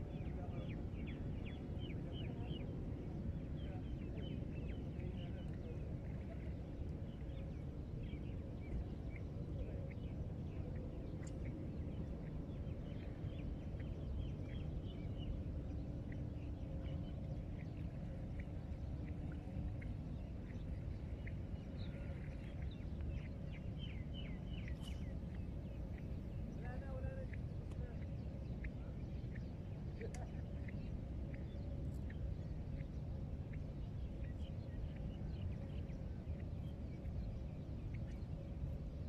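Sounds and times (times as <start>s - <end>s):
birds chirping: 0.0s - 39.0s
steady low rumble: 0.0s - 39.0s.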